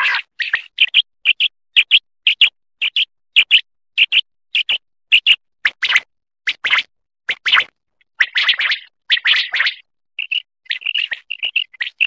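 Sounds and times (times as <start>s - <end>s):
quail calling: 0.0s - 0.6s.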